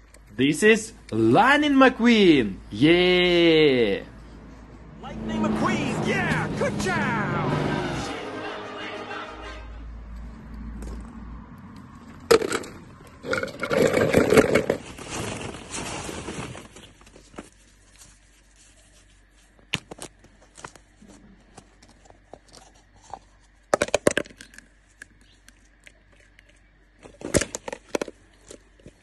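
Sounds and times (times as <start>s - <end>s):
rustling and scraping of plastic toys: 12.0s - 29.0s.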